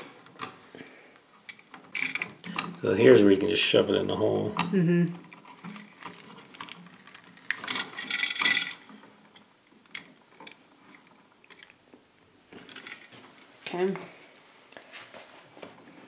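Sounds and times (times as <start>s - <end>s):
screwdriver scraping rattle: 5.3s - 8.9s.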